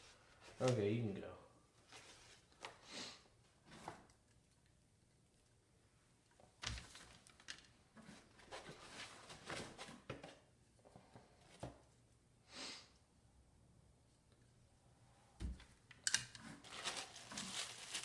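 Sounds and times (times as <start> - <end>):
short breathy hiss: 12.5 - 12.9
packaging rustling and clicks: 16.1 - 18.0.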